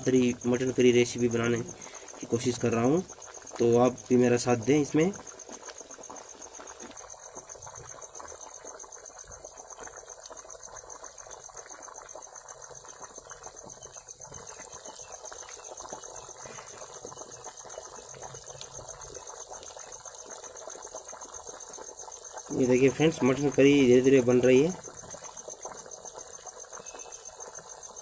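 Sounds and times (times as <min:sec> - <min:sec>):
curry bubbling with small pops: 0:00.0 - 0:28.0
high insect trill: 0:00.0 - 0:28.0.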